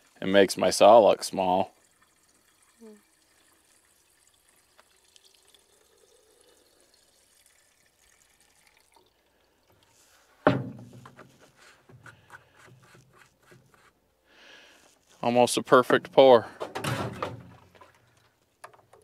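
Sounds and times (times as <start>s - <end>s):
fuel trickling into tank: 0.0s - 15.2s, 17.4s - 19.0s
loud thump: 10.4s - 11.1s, 16.6s - 17.7s.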